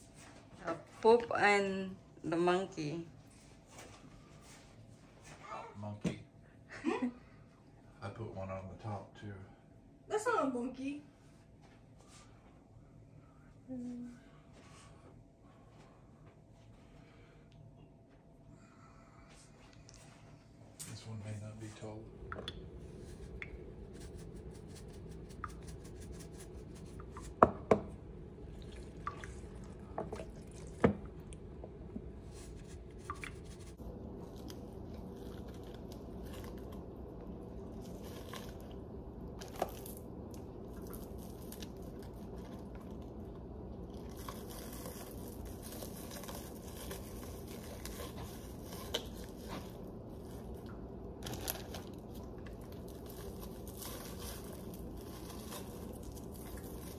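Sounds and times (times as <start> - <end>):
low steady hum: 0.0 - 56.9
wet squishing of raw chicken: 28.4 - 31.4.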